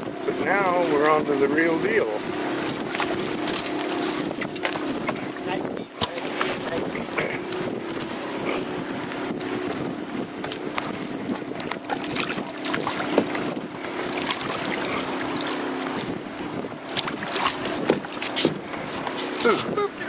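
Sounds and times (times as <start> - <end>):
motor hum: 0.0 - 20.0
water slapping boat hull: 0.0 - 20.0
wind buffeting microphone: 0.0 - 20.0
sharp splashes: 2.3 - 5.0, 6.0 - 9.2, 10.4 - 19.7.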